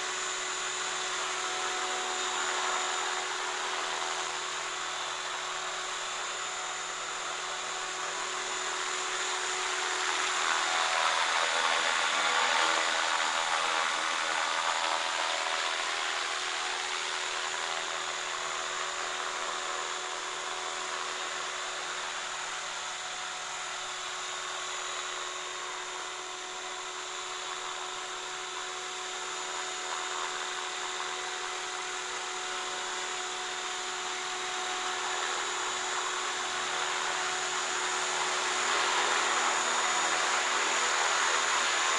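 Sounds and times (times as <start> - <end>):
electric motor whine: 0.0 - 41.9.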